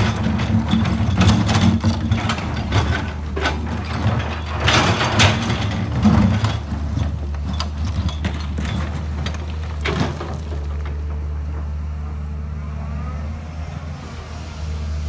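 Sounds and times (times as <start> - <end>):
metallic clanks and scrapes: 0.0 - 11.7
excavator diesel engine running: 0.0 - 15.0.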